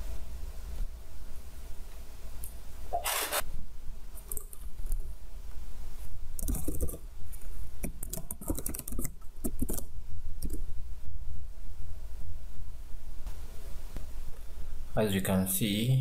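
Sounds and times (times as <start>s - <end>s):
low steady hum: 0.0s - 16.0s
computer keyboard keys clicking: 6.4s - 7.0s, 7.8s - 10.6s.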